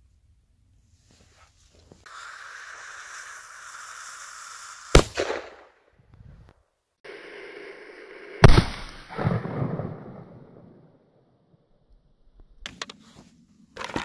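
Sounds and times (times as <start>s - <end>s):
firecracker fuse hissing: 2.0s - 5.8s
firecracker bang: 4.9s - 5.7s, 8.4s - 10.6s.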